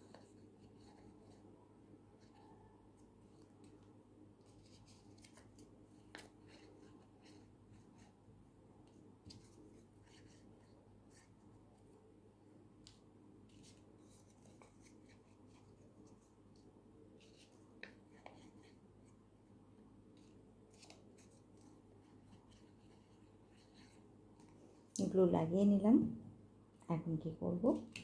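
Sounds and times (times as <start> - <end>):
low steady hum: 0.0 - 28.0
paper rustling: 4.4 - 8.1, 20.2 - 24.5.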